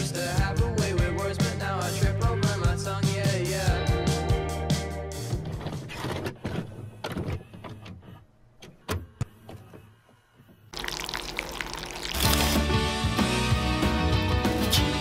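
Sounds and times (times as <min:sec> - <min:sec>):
music: 0:00.0 - 0:05.8, 0:11.9 - 0:15.0
liquid pouring: 0:10.8 - 0:12.8.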